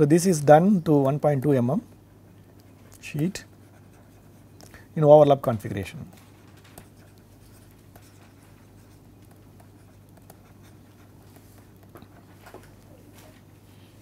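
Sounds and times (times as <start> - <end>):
low steady hum: 0.0 - 14.0
stylus scratching on tablet: 2.1 - 12.4.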